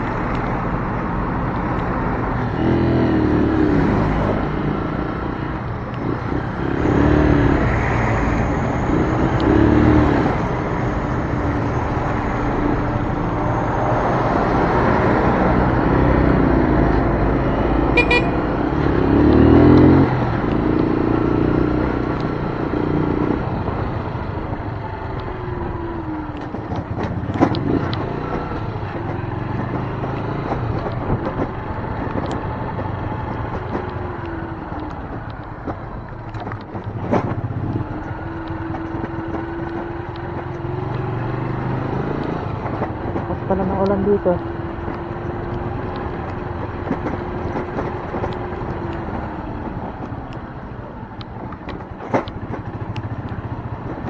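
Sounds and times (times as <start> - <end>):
motorcycle engine revving: 2.4 - 8.2, 15.5 - 24.3, 36.5 - 50.1
short beep: 18.0 - 18.5.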